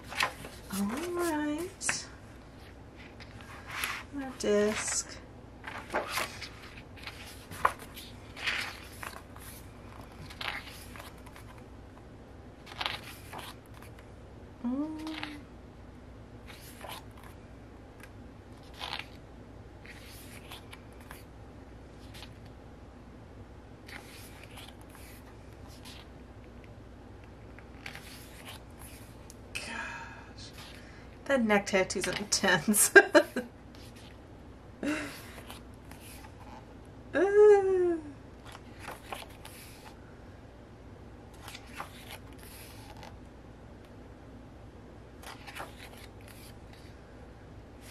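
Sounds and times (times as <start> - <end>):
pages turning: 0.0 - 11.7, 12.6 - 14.1, 15.0 - 15.4, 16.4 - 17.4, 18.0 - 19.2, 19.8 - 21.3, 21.9 - 22.5, 23.8 - 26.1, 27.5 - 29.3, 33.7 - 34.2, 35.1 - 36.6, 38.4 - 40.0, 41.3 - 43.2, 45.2 - 46.9.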